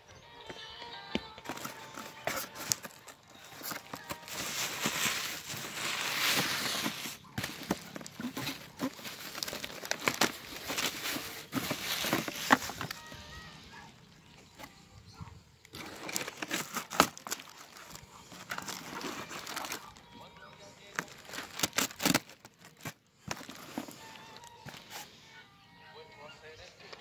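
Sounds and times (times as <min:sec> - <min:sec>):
cardboard and plastic crinkling: 0:01.3 - 0:14.8, 0:15.6 - 0:25.1
cardboard ripping: 0:01.5 - 0:13.2, 0:15.7 - 0:20.0, 0:21.0 - 0:25.1.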